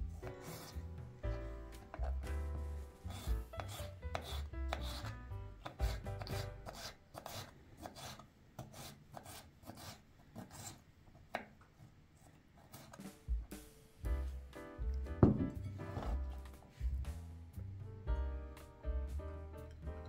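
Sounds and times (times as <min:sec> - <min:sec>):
knife chopping on a wooden board: 0:03.1 - 0:07.4.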